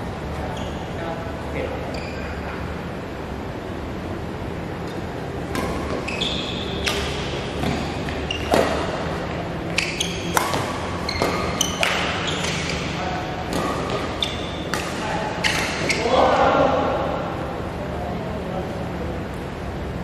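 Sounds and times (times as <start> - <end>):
sneakers squeaking on court: 0.4 - 1.0, 1.8 - 2.4, 4.8 - 16.2
racket hitting shuttlecock: 4.8 - 16.1.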